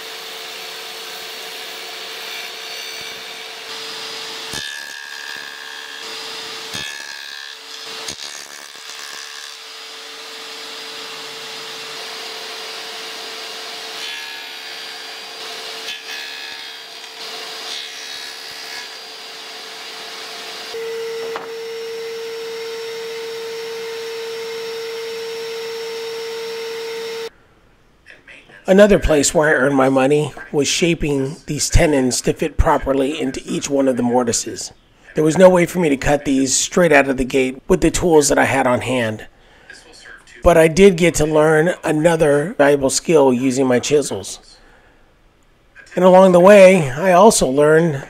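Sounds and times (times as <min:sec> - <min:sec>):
table saw cutting wood: 0:00.0 - 0:27.3.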